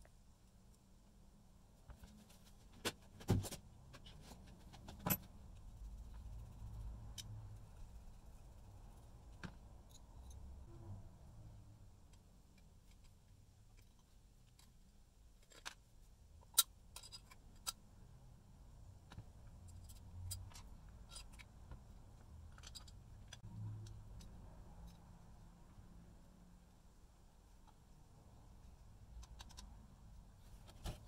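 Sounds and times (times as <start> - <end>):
small parts clicking and tapping: 3.9 - 10.6, 12.0 - 18.0, 18.9 - 25.3, 27.5 - 31.0.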